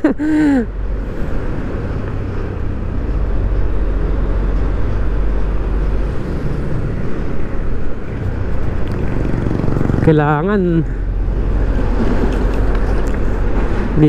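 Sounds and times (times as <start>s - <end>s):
scooter riding noise: 7.8s - 10.2s.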